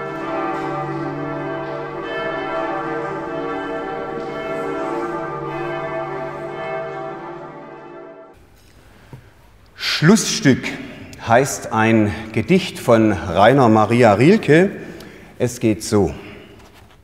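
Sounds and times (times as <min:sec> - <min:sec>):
church bells ringing: 0:00.0 - 0:08.4.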